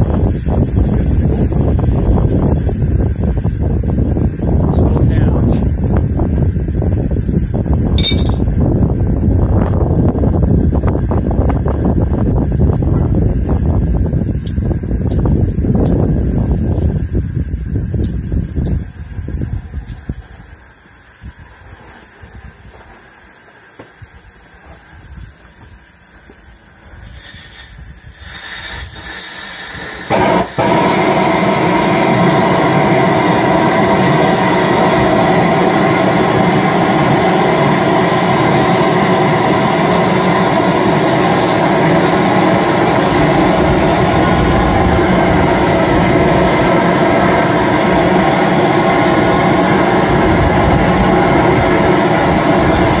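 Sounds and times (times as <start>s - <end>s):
engine mechanical rush: 28.8s - 53.0s.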